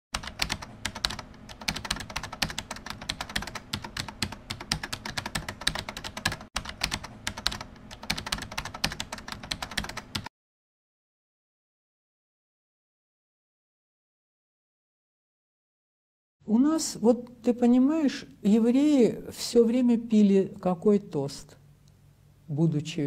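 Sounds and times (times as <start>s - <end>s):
computer keyboard typing: 0.2s - 10.3s.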